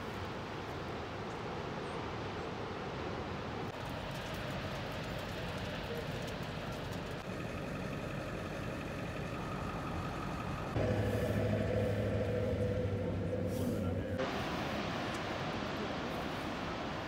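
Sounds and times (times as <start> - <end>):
vehicle engine idling: 3.7 - 16.6.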